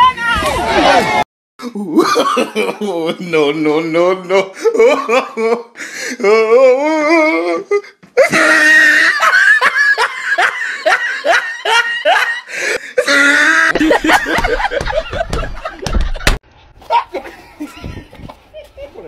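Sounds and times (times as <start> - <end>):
person laughing heartily: 1.6 - 3.4, 4.3 - 6.5, 8.2 - 19.0.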